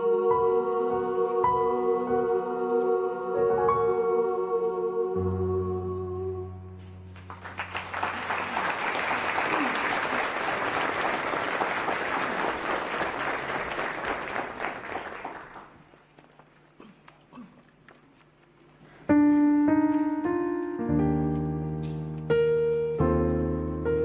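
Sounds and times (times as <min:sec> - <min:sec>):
piano playing: 0:00.0 - 0:07.9, 0:19.1 - 0:24.0
audience applause: 0:07.2 - 0:15.9.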